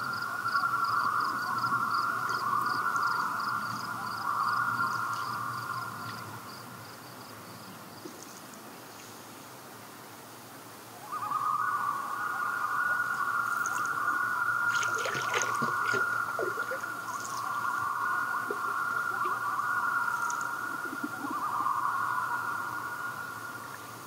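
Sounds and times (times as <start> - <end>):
loons wailing: 11.0 - 23.7.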